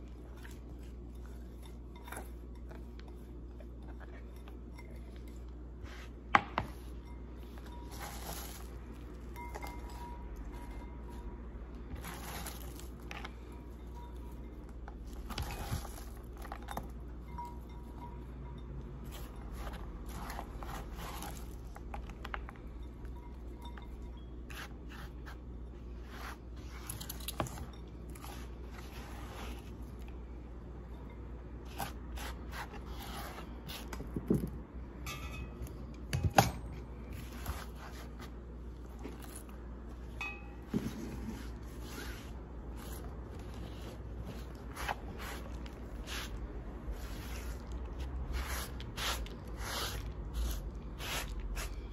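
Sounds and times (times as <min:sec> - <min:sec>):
palm sweeping plastic cutting board: 0:40.7 - 0:43.0.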